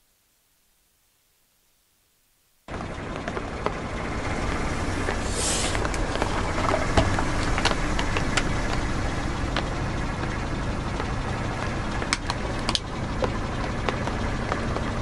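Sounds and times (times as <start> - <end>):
car engine: 2.7 - 15.0
brief hiss: 5.2 - 5.8.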